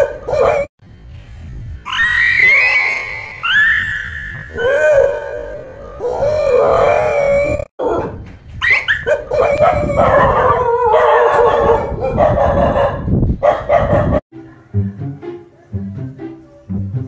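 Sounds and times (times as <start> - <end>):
dogs barking and howling: 0.0 - 0.7, 1.9 - 14.2.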